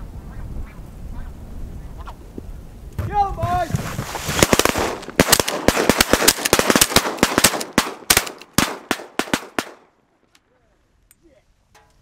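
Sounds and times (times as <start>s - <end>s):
shotguns firing volley: 3.0s - 9.8s.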